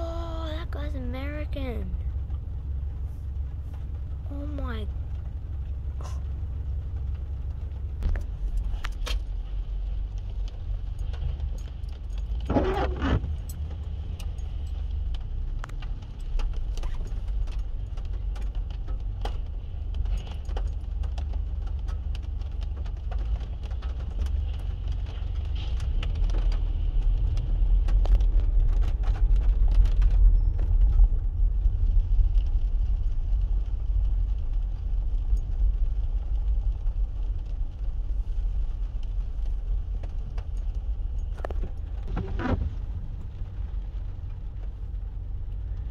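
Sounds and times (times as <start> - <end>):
car driving rumble from inside: 0.0 - 45.9
light clicks and jingles: 10.1 - 12.5, 13.3 - 26.3.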